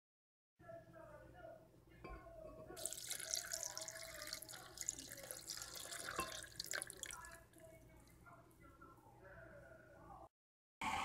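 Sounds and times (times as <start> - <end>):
water pouring into a blender jar: 2.8 - 7.4.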